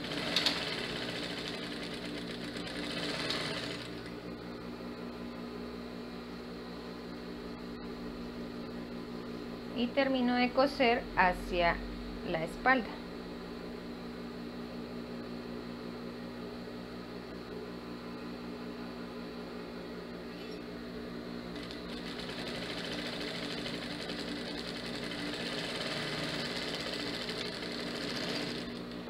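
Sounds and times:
sewing machine stitching fabric: 0:00.0 - 0:04.1, 0:21.6 - 0:29.0
sewing machine motor humming: 0:00.0 - 0:04.2, 0:21.5 - 0:29.0.

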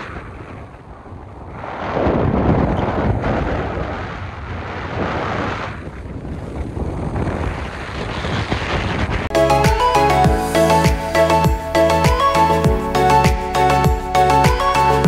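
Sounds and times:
wind buffeting microphone: 0:00.0 - 0:09.3.

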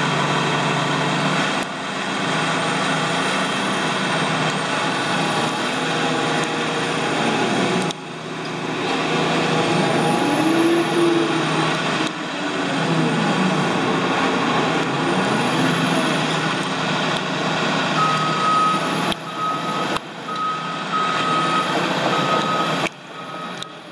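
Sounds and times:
excavator diesel engine running: 0:00.0 - 0:23.9
high-pitched beeping alarm: 0:18.0 - 0:23.9.

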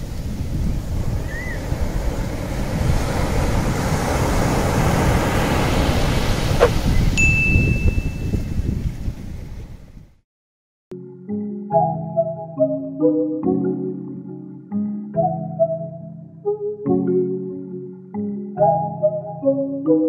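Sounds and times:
waves breaking: 0:00.0 - 0:07.9
short high chirps: 0:06.6 - 0:08.4
bright high chime: 0:07.2 - 0:08.5.

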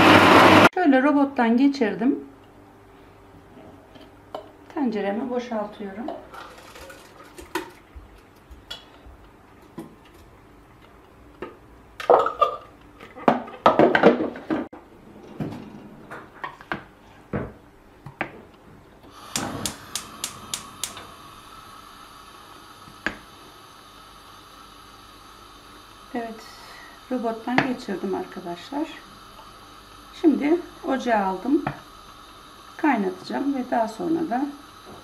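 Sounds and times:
knocks and clatter of cookware: 0:13.2 - 0:14.7
gas burner hiss with hum: 0:15.3 - 0:35.0
gas igniter clicking: 0:19.1 - 0:21.1.

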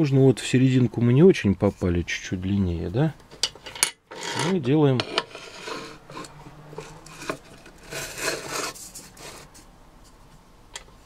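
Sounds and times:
metal scraping against vise: 0:03.4 - 0:09.7.

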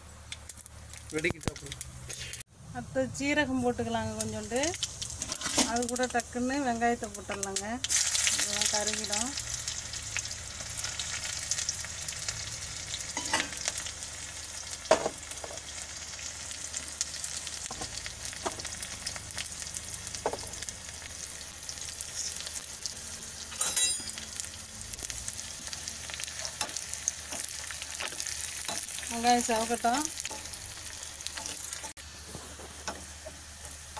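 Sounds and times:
onion sizzling in hot oil: 0:00.0 - 0:33.9.

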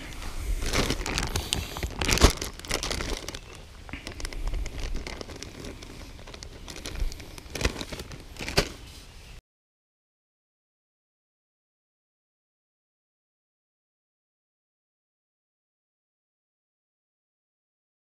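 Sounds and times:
plastic bag crinkling: 0:00.0 - 0:09.1.

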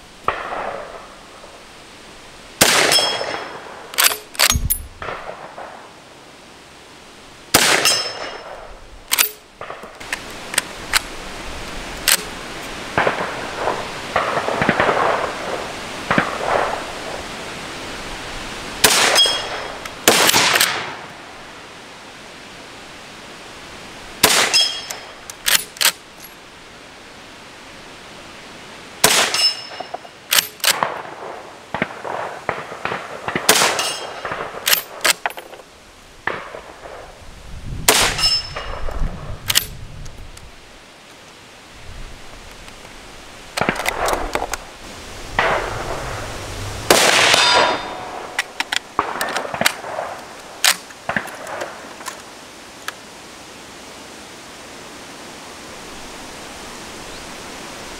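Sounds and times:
rifle shots: 0:02.6 - 0:05.8, 0:07.5 - 0:09.8, 0:13.0 - 0:16.8, 0:18.8 - 0:21.0, 0:24.2 - 0:26.0, 0:29.0 - 0:35.3, 0:37.9 - 0:38.7, 0:46.8 - 0:51.8
rifle bolt clacking: 0:04.0 - 0:04.8, 0:09.1 - 0:09.4, 0:24.6 - 0:26.0.

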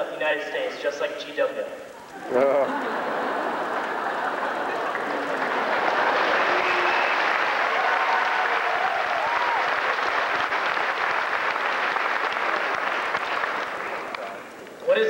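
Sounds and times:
faint voices: 0:01.8 - 0:08.9
audience applauding: 0:02.1 - 0:15.0.

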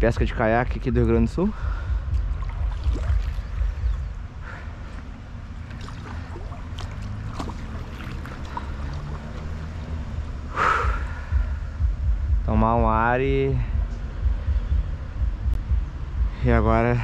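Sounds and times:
steady low rumble: 0:00.0 - 0:17.0
water trickling and lapping: 0:01.6 - 0:10.2
small splashes: 0:02.2 - 0:04.0, 0:04.9 - 0:09.8.

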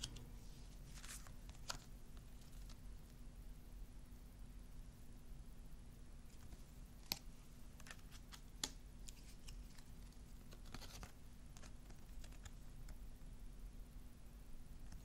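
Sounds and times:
cards clicking and sliding: 0:06.4 - 0:13.0.

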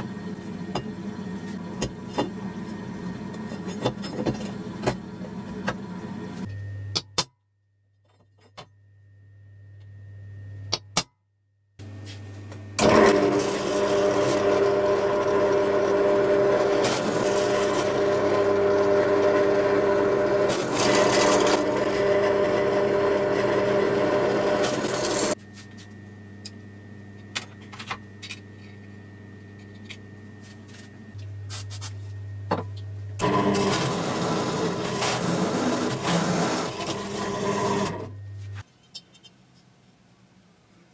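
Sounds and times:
low hum with ticks: 0:08.0 - 0:11.0, 0:25.4 - 0:31.4
drill press drilling steel: 0:12.8 - 0:25.4, 0:33.2 - 0:38.1.

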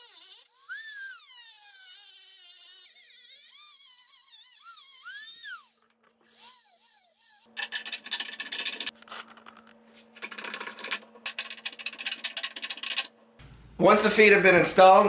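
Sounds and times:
rotary tool whining down: 0:00.0 - 0:07.5.

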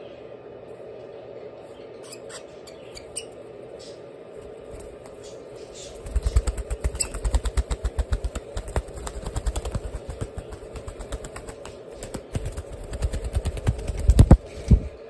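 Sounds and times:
bird wings flapping: 0:04.4 - 0:15.0.

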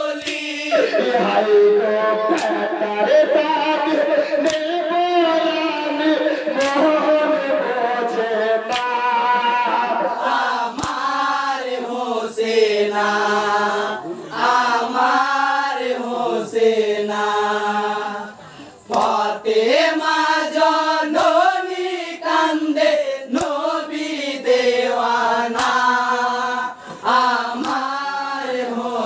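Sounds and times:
man singing into microphone: 0:00.0 - 0:10.3
group chanting: 0:00.0 - 0:29.0.

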